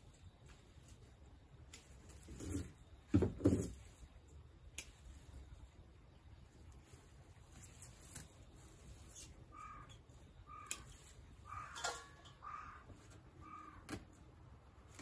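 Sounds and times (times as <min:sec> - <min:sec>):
crow cawing: 0:09.5 - 0:13.9.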